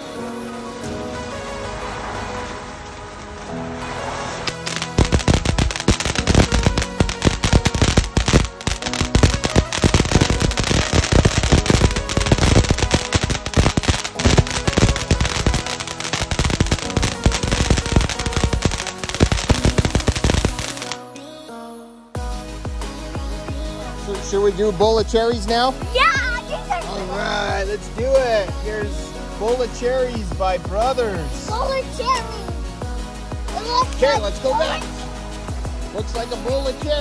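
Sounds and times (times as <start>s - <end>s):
firework crackling and banging: 0.0s - 21.1s, 28.0s - 37.0s
background music: 0.0s - 37.0s.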